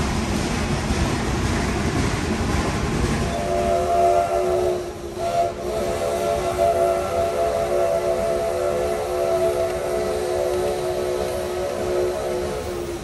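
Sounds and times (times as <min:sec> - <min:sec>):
steam train rumbling: 0:00.0 - 0:13.0
steam whistle chord: 0:03.3 - 0:13.0.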